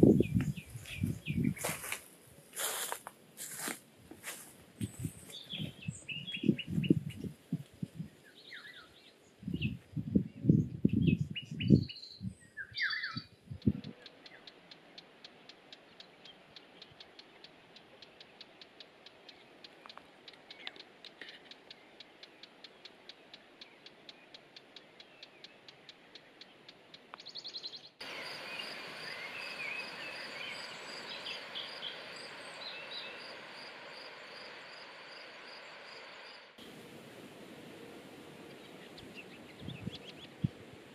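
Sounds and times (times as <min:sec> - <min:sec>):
footsteps on grass: 0:00.0 - 0:05.8
small birds chirping: 0:00.0 - 0:40.9
faint even ticking: 0:13.5 - 0:27.3.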